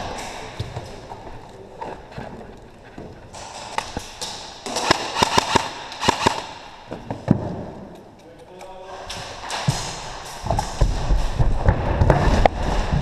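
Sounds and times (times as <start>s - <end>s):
airsoft gunfire cracks: 4.7s - 6.7s.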